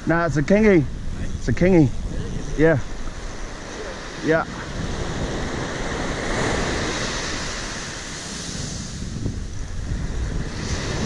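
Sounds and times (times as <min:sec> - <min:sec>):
wind buffeting microphone: 0:00.0 - 0:11.0
surf breaking on beach: 0:00.4 - 0:11.0.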